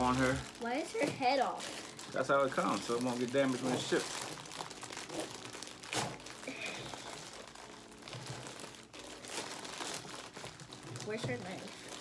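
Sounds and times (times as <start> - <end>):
packaging crinkling and rustling: 0.0 - 12.0
small clicks and crackles: 0.0 - 12.0.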